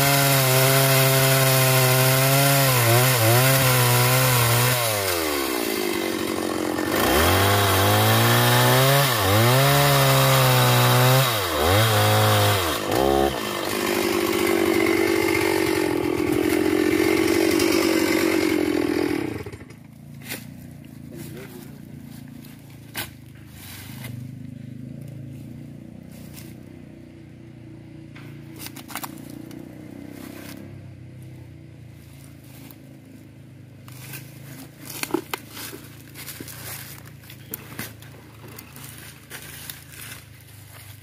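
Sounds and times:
rustling in dry leaves: 20.0s - 24.5s, 31.2s - 41.0s.

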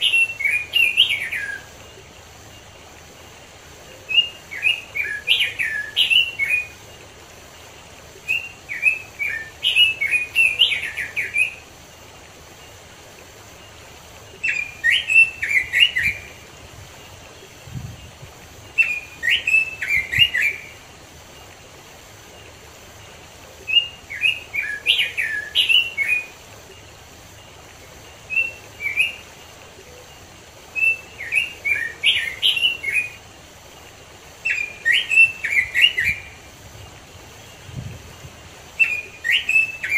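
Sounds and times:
bird warbling whistled song: 0.0s - 2.6s, 3.9s - 6.9s, 8.2s - 11.7s, 13.6s - 16.4s, 17.8s - 20.9s, 23.6s - 26.9s, 28.1s - 33.2s, 34.4s - 36.4s, 38.7s - 39.9s
low steady hiss: 0.0s - 39.9s.

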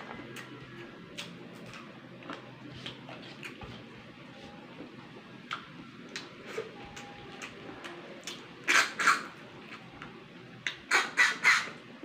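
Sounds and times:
mouth clicks and chewing: 1.1s - 3.6s, 5.4s - 9.9s.

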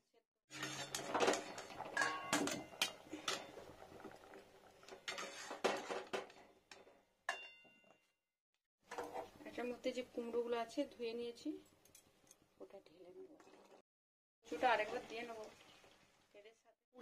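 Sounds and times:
metal utensils clinking on pan: 0.5s - 3.8s, 4.9s - 8.0s.

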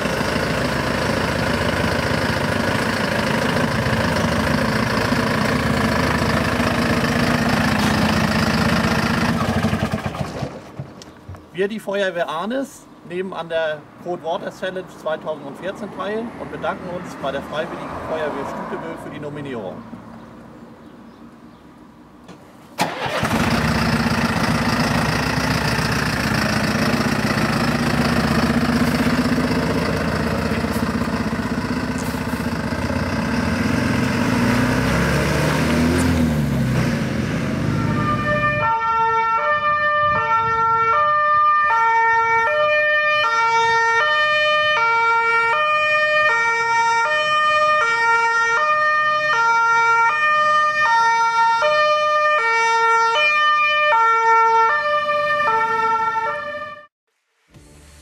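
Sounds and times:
diesel engine running: 0.0s - 10.9s, 22.8s - 38.7s
two-tone siren: 37.6s - 56.9s.

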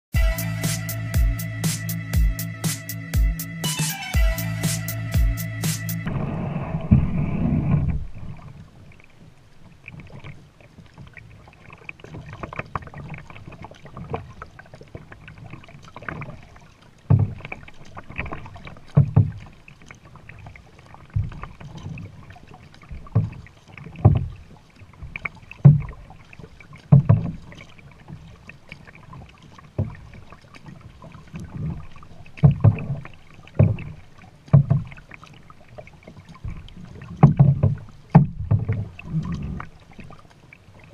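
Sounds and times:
water sloshing along hull: 4.2s - 40.9s
paddle splashing into water: 6.0s - 40.9s.

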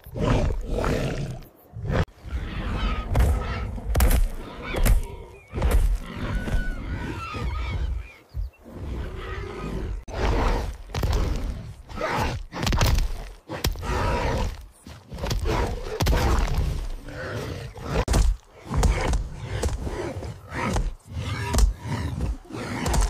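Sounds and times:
animals growling and grunting: 0.0s - 23.0s.

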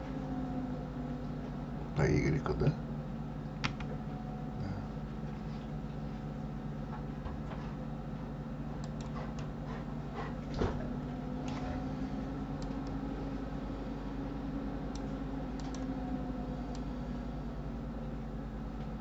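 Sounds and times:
low electrical hum and hiss: 0.0s - 19.0s
computer mouse and keyboard clicks: 15.0s - 15.9s.

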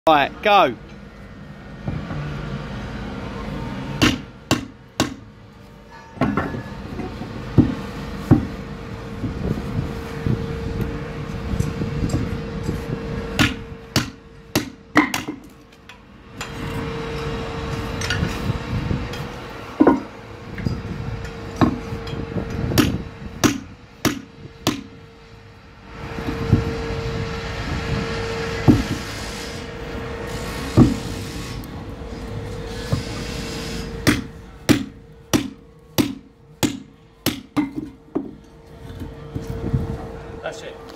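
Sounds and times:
steady hum: 0.1s - 40.9s
hammer striking steel chisel: 4.0s - 5.2s, 22.8s - 24.9s, 34.0s - 38.4s.

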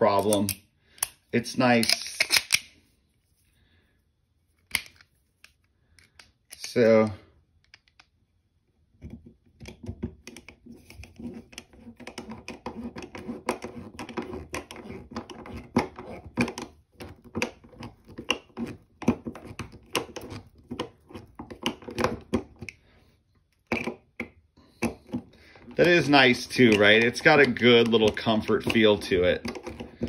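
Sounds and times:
screw creaking into wood: 9.8s - 22.7s.

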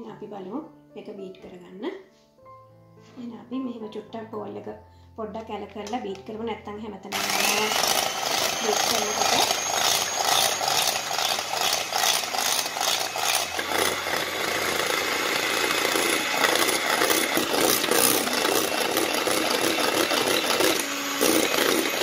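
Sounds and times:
electric hand mixer running: 7.1s - 22.0s.

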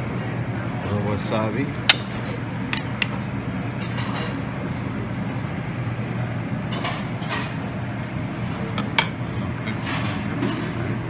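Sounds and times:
steady low hum: 0.0s - 6.7s.

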